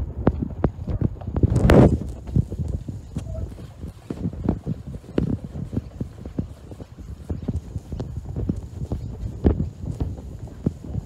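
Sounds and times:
footsteps on paved platform: 0.0 - 11.0.

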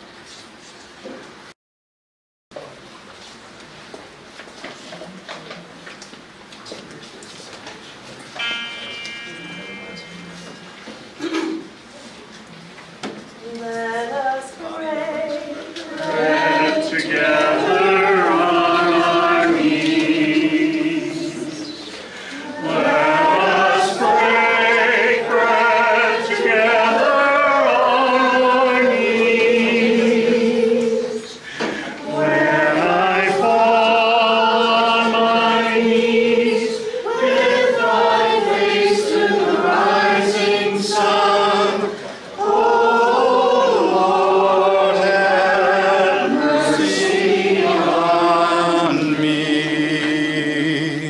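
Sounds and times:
congregation singing a hymn: 13.0 - 51.0.

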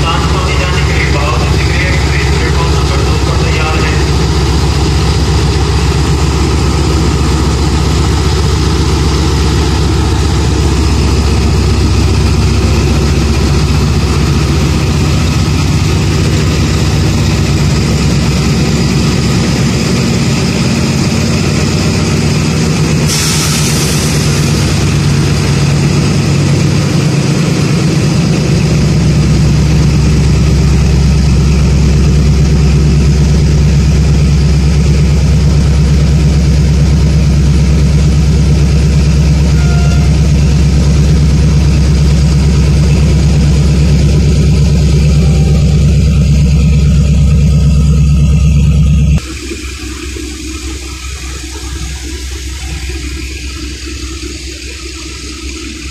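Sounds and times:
locomotive engine idling: 0.0 - 55.9.

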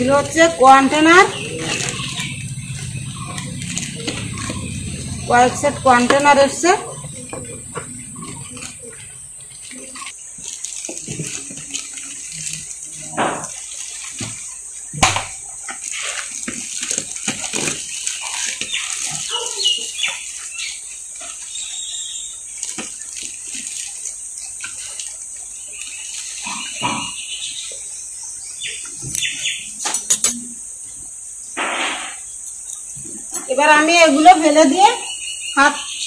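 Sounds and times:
plastic wrapping crinkling: 0.0 - 14.8, 15.4 - 26.3
packing paper rustling: 8.4 - 14.6, 15.8 - 20.5
containers clinking on stone counter: 29.8 - 30.4.

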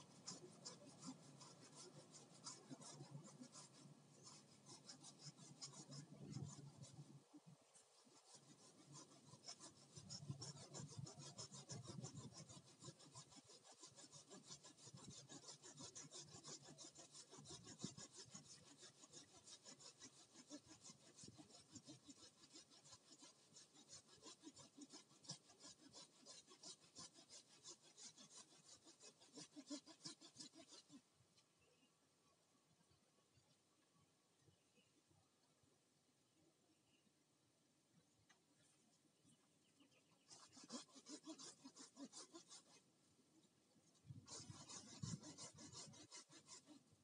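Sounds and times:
hand saw cutting bamboo: 0.0 - 7.2, 7.8 - 31.0, 40.2 - 42.9, 43.8 - 47.0.

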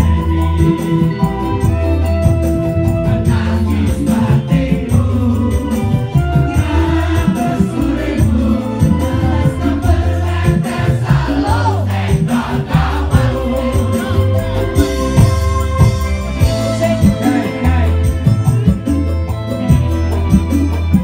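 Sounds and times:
band playing through pa system: 0.0 - 21.0
women backing singers: 3.0 - 15.8
man singing: 16.4 - 18.6.

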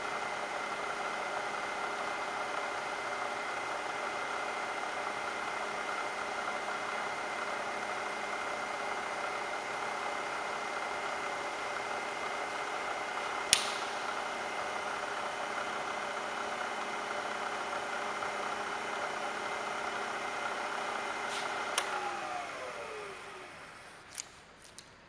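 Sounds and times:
milling machine motor whine: 0.0 - 24.2
sharp switch click: 13.5 - 14.0.

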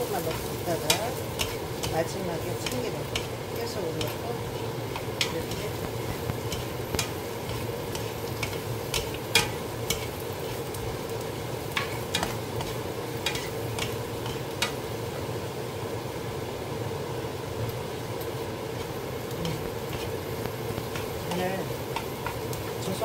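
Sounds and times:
spatulas knocking and scraping pan: 0.0 - 10.9, 11.7 - 14.8, 20.8 - 23.0
mushrooms sizzling in oil: 0.0 - 23.0.

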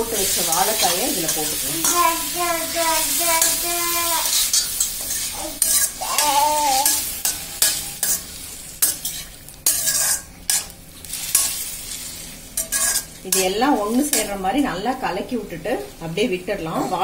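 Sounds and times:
light sizzle: 0.0 - 17.0
spoon clinking and scraping pan: 3.4 - 14.4.

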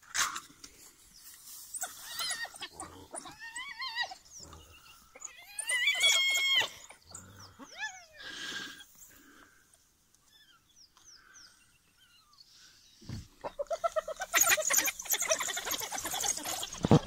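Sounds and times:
animals squealing: 1.7 - 8.9, 13.3 - 17.0
harsh animal rasp: 1.8 - 8.6, 13.2 - 17.0.

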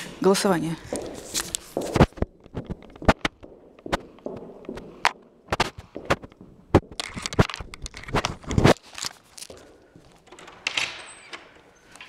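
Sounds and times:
rustling on microphone: 0.8 - 9.7.

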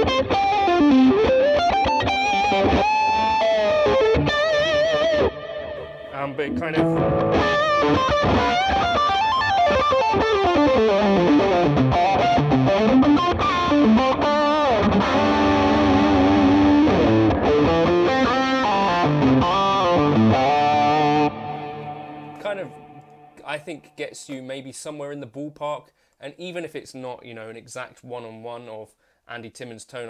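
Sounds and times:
overdriven electric guitar lead: 0.0 - 23.4.

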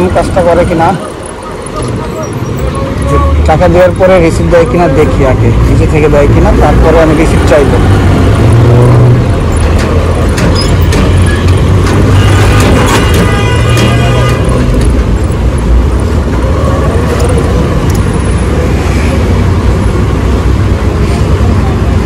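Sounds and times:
motorcycle engine and road rumble: 5.7 - 22.0.

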